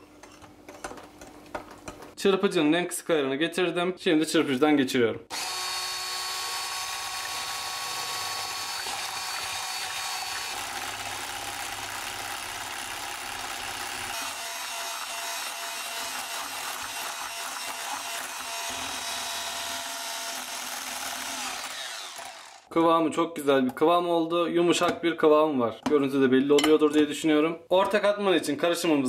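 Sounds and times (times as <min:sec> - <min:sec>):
electric hand mixer whirring: 0:05.3 - 0:22.7.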